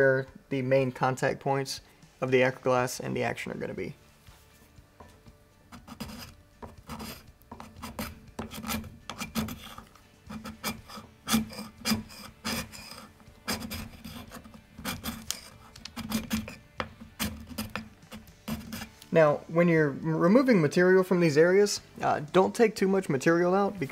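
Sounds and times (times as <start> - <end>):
tool scraping wood: 5.7 - 19.0.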